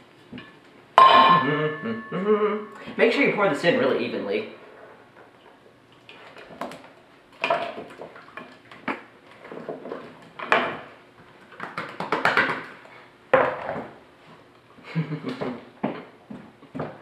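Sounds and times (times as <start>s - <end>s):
bowl knocking against metal pan: 1.0s - 1.5s.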